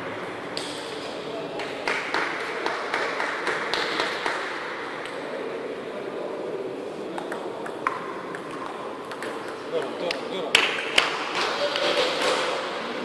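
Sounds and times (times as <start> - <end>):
table tennis ball taps: 7.2 - 11.5.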